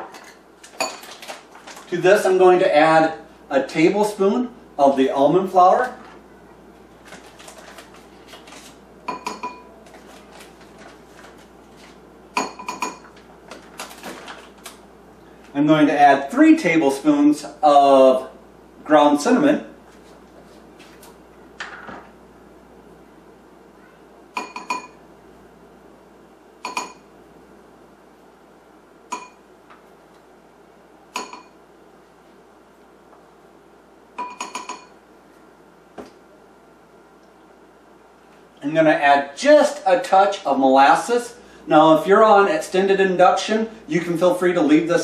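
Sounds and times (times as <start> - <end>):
metal spoon clinking on bowl: 34.2 - 35.0.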